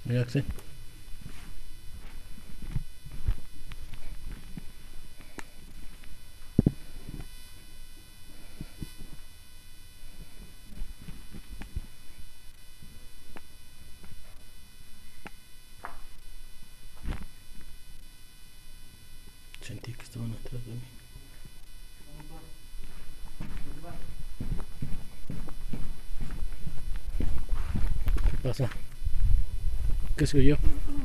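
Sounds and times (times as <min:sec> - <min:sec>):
faint steady hiss: 0:00.0 - 0:31.0
footsteps thudding: 0:22.8 - 0:28.5.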